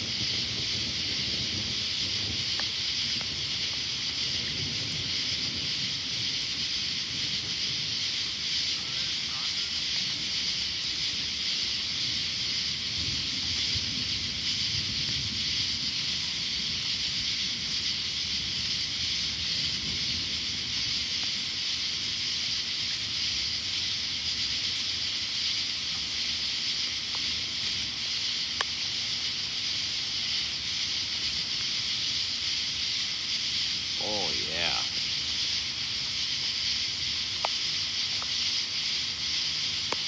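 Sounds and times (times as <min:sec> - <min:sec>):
insect chorus buzzing: 0:00.0 - 0:40.0
pulsed insect call: 0:00.0 - 0:40.0.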